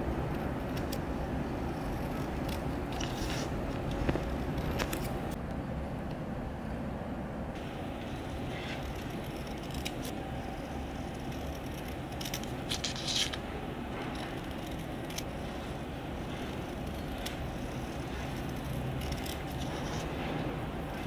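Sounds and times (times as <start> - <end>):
scissors snipping paper: 0.4 - 1.1, 1.7 - 5.3, 8.5 - 21.0.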